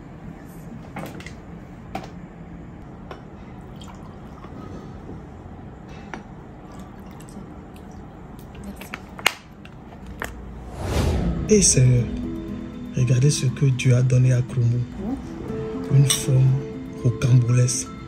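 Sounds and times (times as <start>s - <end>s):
water pouring into glasses: 3.6s - 5.1s, 6.5s - 8.9s
glass clinking: 16.0s - 16.4s.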